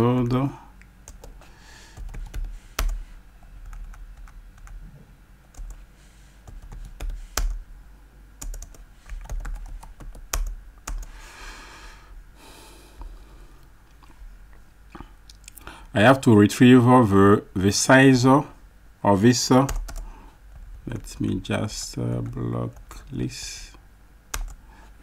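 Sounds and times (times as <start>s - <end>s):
computer keyboard typing: 1.1s - 3.0s, 3.6s - 4.8s, 5.5s - 5.8s, 6.4s - 7.6s, 8.4s - 11.1s, 19.6s - 21.1s, 24.3s - 24.6s.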